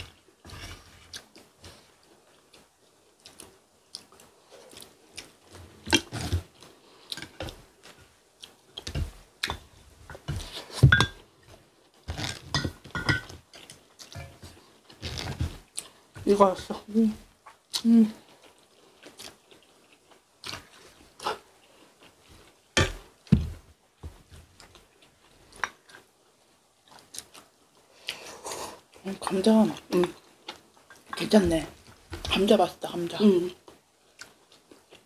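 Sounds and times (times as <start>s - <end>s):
chewing and mouth sounds: 1.1s - 7.6s, 17.4s - 22.6s, 26.8s - 29.0s.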